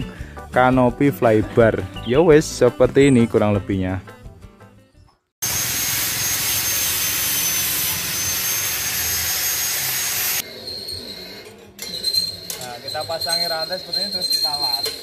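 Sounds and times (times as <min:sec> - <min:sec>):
arc welding hiss: 0:05.4 - 0:10.4.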